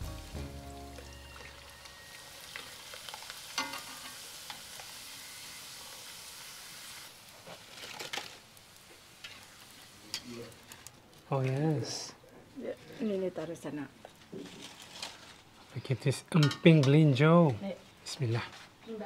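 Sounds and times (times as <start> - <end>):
crackers deep-frying in oil: 0.0 - 18.4
metal spatula clinking on pan: 3.6 - 4.2, 16.3 - 17.0.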